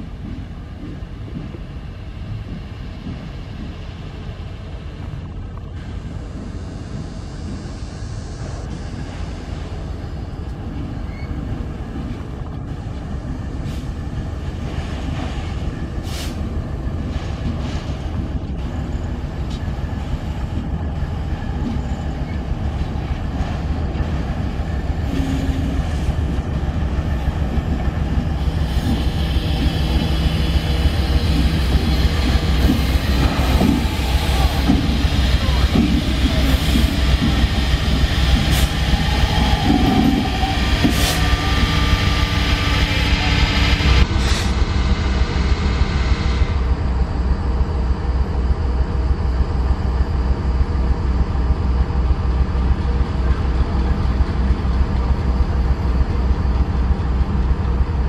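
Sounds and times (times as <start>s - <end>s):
diesel locomotive engine drone: 0.0s - 58.0s.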